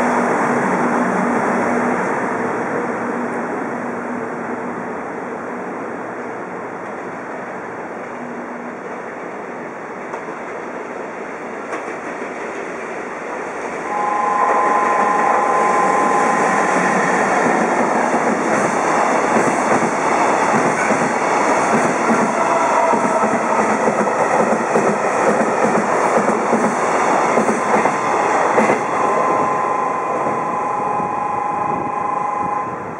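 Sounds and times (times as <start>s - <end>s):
steady two-pitch tone: 13.8s - 18.0s, 27.6s - 32.9s
train wheels clattering over rail joints: 17.5s - 28.8s.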